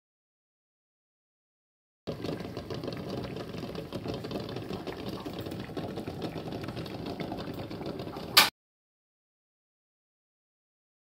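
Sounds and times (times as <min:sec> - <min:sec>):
water boiling and bubbling: 0:02.1 - 0:08.5.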